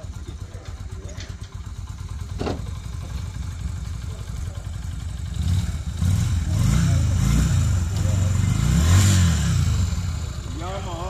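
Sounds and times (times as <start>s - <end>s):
motorcycle engine idling and revving: 0.0s - 11.0s.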